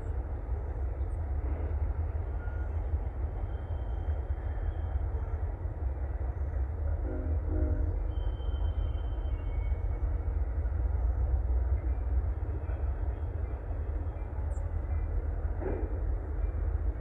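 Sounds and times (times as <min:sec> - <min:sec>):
diesel locomotive engines rumbling: 0:00.0 - 0:17.0
faint high wheel squeal: 0:02.2 - 0:05.4, 0:07.1 - 0:10.2.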